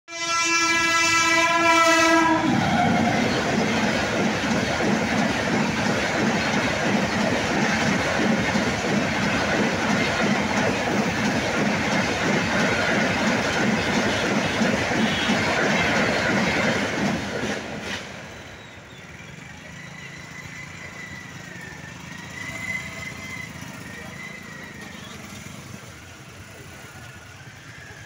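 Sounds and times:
train horn blast: 0:00.1 - 0:03.1, 0:15.0 - 0:15.5
train coaches rumbling past: 0:00.1 - 0:28.0.

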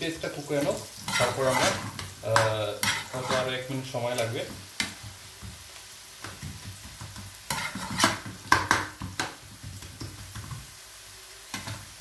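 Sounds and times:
onions sizzling: 0:00.0 - 0:12.0
metal spoon scraping a pan: 0:00.1 - 0:04.3, 0:07.5 - 0:09.2.

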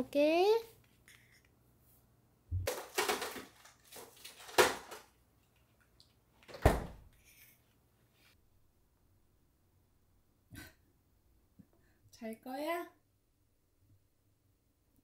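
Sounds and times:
freezer opening and shutting: 0:02.6 - 0:05.1.

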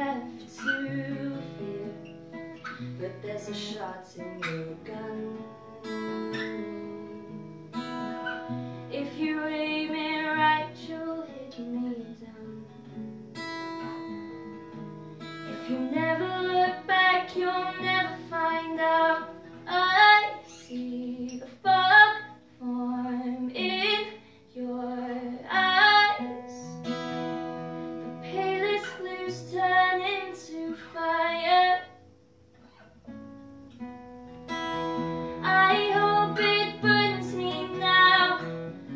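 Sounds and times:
woman singing: 0:00.0 - 0:07.4, 0:08.9 - 0:12.9, 0:15.4 - 0:26.9, 0:28.2 - 0:32.0, 0:35.4 - 0:38.9
strummed acoustic guitar: 0:00.0 - 0:38.9.

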